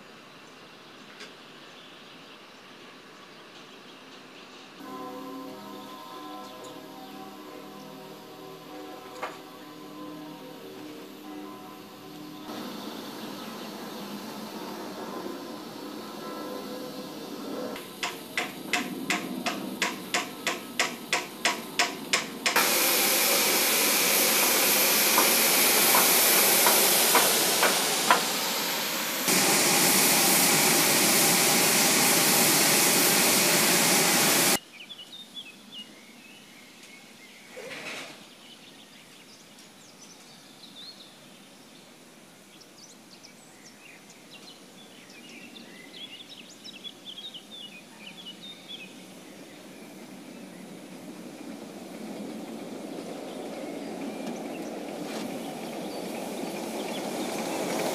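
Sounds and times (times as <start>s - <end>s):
escaping steam hiss: 7.4s - 34.6s, 45.9s - 57.9s
steam locomotive exhaust chuffs: 12.5s - 34.6s, 49.9s - 57.9s.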